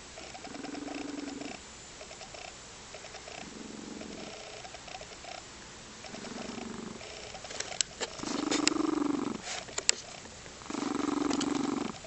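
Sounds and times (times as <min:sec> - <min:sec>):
cat purring: 0:00.2 - 0:12.0
sharp clicks: 0:06.0 - 0:08.9, 0:11.2 - 0:12.0.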